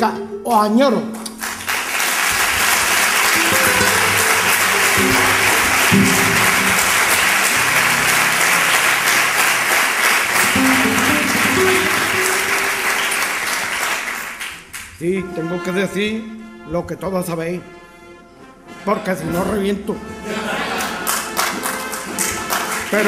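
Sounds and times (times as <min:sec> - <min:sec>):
audience applauding: 0:01.3 - 0:14.9, 0:20.7 - 0:23.0.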